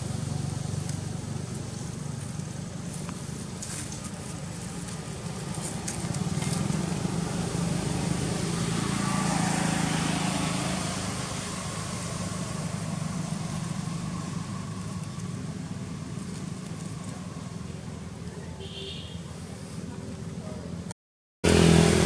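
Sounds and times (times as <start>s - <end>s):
vehicle engine hum passing: 0.0s - 18.6s, 19.2s - 22.0s.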